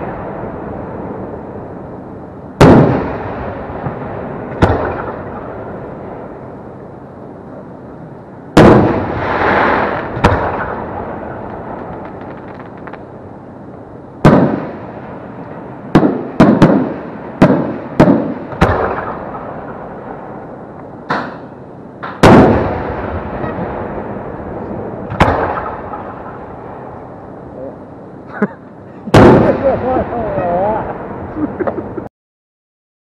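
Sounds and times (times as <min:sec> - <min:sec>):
firework shells booming: 0:02.6 - 0:05.7, 0:08.5 - 0:13.1, 0:14.2 - 0:15.1, 0:15.9 - 0:20.3, 0:21.0 - 0:24.1, 0:25.1 - 0:26.7, 0:29.1 - 0:30.1.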